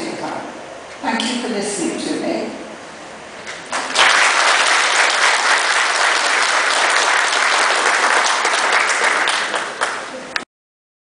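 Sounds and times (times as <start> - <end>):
audience applauding: 3.7 - 10.4.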